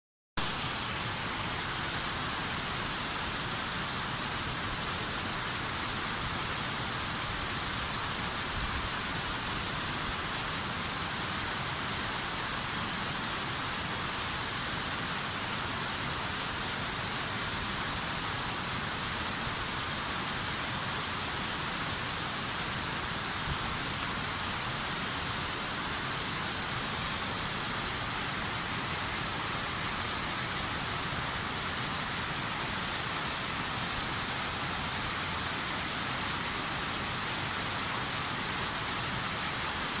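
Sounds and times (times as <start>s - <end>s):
waterfall rushing: 0.4s - 40.0s.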